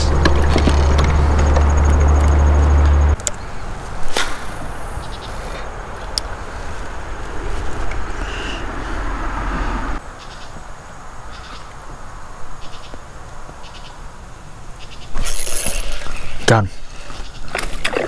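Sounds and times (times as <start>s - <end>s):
fishing reel ticks: 15.2s - 16.3s.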